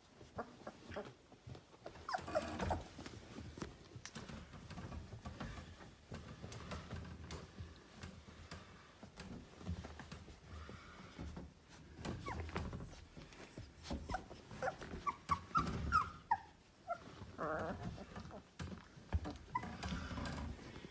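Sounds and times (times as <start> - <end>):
bedding rustling: 0.0 - 20.9
puppies whimpering and squeaking: 0.2 - 3.5, 11.9 - 20.5.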